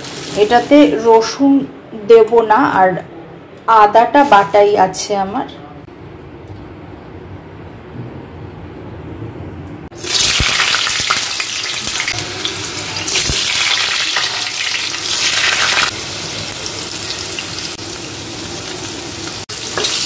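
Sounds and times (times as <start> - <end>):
potatoes sizzling in hot oil: 0.0 - 0.9, 10.0 - 20.0.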